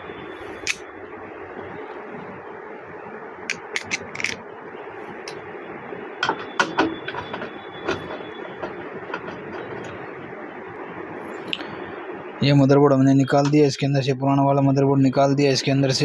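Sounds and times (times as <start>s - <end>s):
steady background noise: 0.0s - 16.0s
clicks and knocks in metal pc case: 6.2s - 10.1s.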